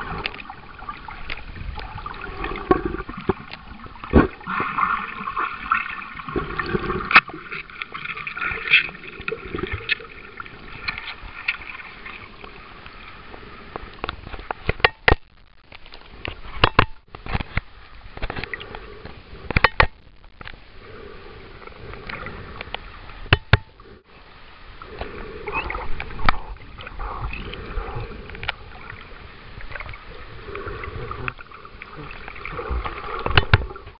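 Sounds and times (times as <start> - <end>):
muffled underwater water sloshing: 0.0 - 34.0
sharp knocks and clicks: 14.6 - 15.3, 16.6 - 17.7, 19.5 - 20.0, 23.3 - 23.8.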